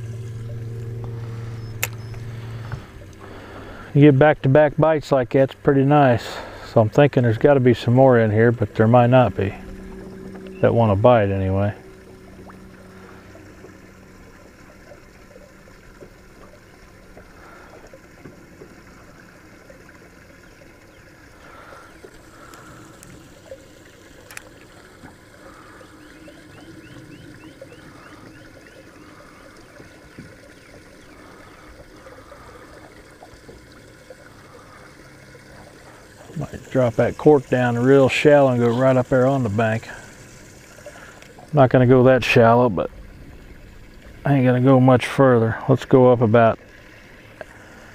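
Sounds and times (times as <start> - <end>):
small waves lapping on hull: 0.0 - 47.9
sharp click: 1.8 - 2.2.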